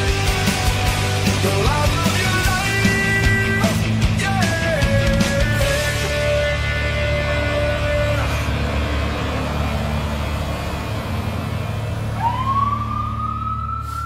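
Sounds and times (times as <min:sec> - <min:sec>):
fire engine rumbling: 0:00.0 - 0:14.0
siren winding up: 0:12.1 - 0:14.0.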